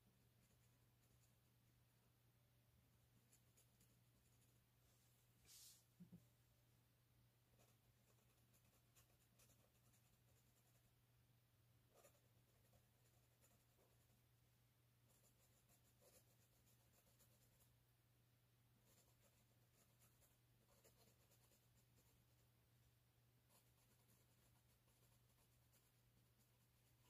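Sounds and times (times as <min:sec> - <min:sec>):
pencil scratching on paper: 0:07.6 - 0:10.9, 0:11.9 - 0:14.2, 0:15.1 - 0:17.7, 0:18.8 - 0:22.4, 0:23.5 - 0:27.0.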